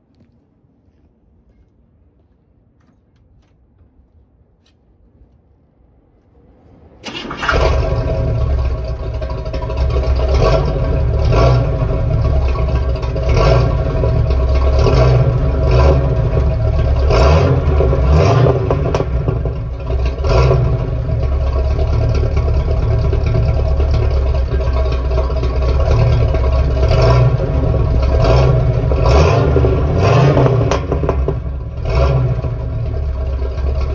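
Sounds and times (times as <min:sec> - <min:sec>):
car engine idling with throttle blips: 0:07.0 - 0:33.9.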